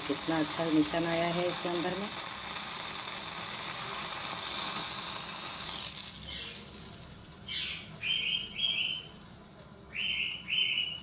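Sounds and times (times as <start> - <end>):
gas stove burner hissing: 0.0 - 11.0
parrot calling: 6.2 - 6.6, 7.5 - 9.1.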